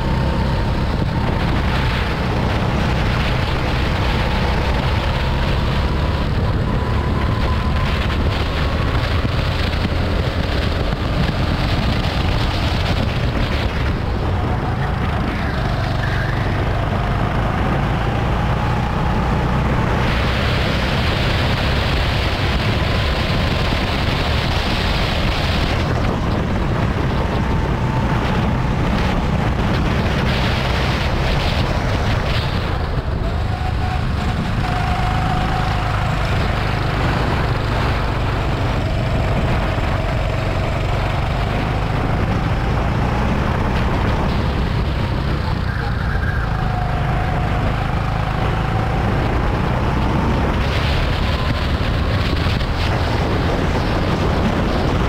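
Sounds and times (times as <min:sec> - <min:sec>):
go-kart engine revving: 0:00.0 - 0:55.0
wind noise on microphone: 0:00.0 - 0:55.0.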